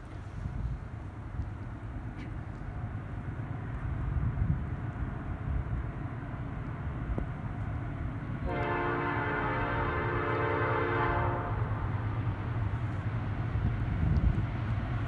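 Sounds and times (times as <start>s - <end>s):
locomotive air horn chord: 8.4s - 11.8s.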